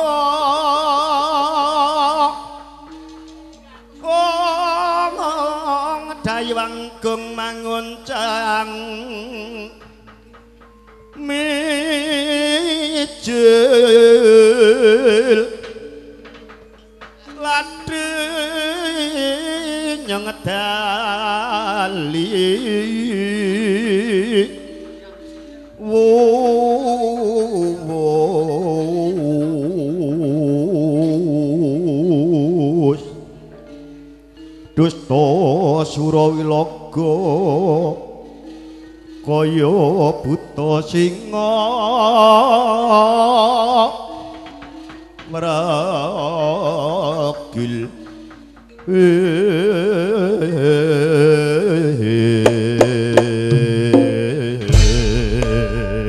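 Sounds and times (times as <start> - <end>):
low gamelan tones: 0.3 - 56.0
man singing wavering chant: 17.2 - 33.2, 34.8 - 38.4, 39.2 - 44.4, 45.2 - 56.0
sharp gamelan strikes: 52.5 - 56.0.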